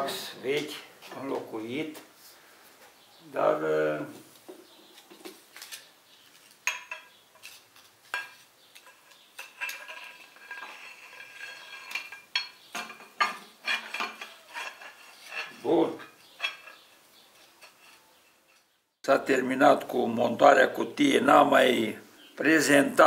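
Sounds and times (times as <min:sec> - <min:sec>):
metal parts clinking and scraping: 0:06.7 - 0:16.8.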